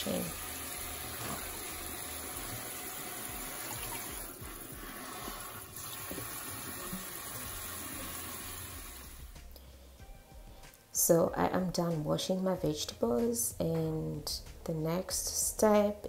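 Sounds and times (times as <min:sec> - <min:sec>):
water splashing into metal sink: 0:00.0 - 0:08.8
tap water running: 0:00.0 - 0:09.4.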